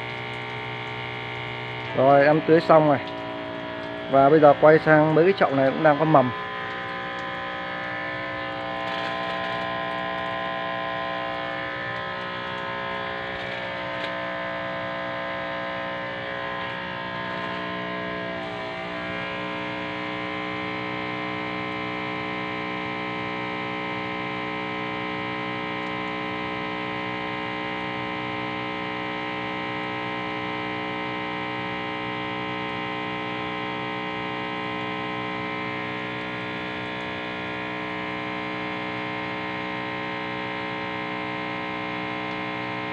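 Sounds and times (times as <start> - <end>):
electric water pump humming: 0.0 - 42.9.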